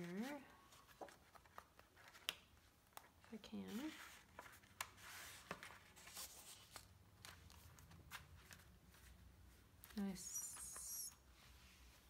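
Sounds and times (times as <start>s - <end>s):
paper rustling and shuffling: 0.0s - 12.0s.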